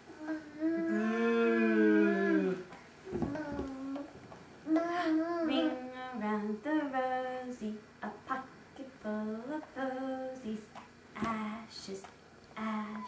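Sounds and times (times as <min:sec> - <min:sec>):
woman singing slow tune: 0:04.7 - 0:13.0.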